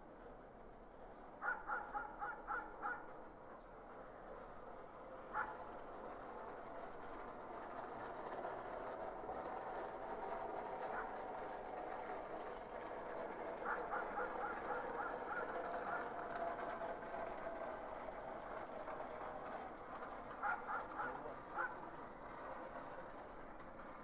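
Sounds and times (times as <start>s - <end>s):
distant dogs barking: 1.4s - 3.2s, 5.3s - 5.7s, 10.8s - 11.2s, 13.5s - 16.3s, 20.4s - 21.9s.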